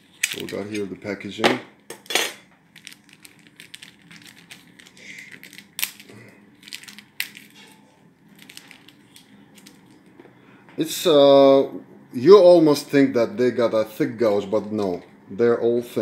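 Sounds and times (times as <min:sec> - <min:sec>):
plastic packet crinkling: 0:00.0 - 0:01.2, 0:02.7 - 0:10.2.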